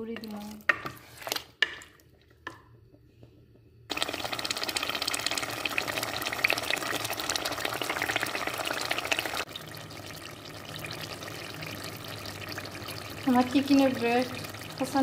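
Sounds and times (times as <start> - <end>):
chicken sizzling in hot oil: 3.9 - 15.0.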